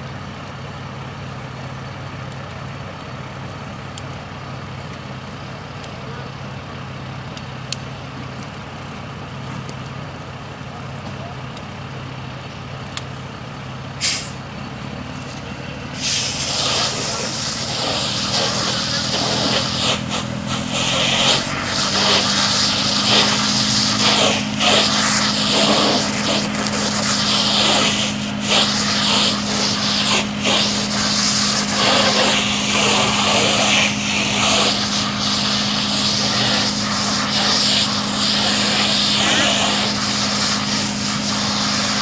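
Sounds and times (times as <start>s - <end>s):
pump engine droning: 0.0s - 42.0s
hose spray hissing: 14.0s - 14.4s, 15.9s - 42.0s.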